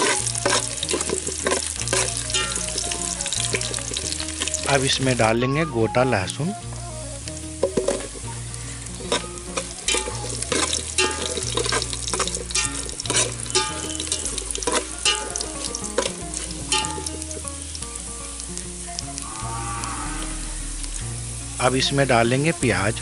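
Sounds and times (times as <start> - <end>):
spoon stirring and scraping pot: 0.0 - 2.9, 9.0 - 17.2
garlic sizzling in hot oil: 0.0 - 23.0.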